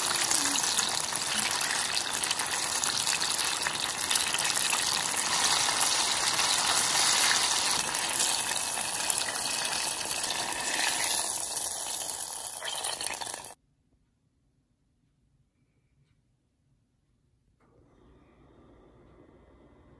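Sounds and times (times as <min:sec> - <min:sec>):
food deep-frying in hot oil: 0:00.0 - 0:13.6.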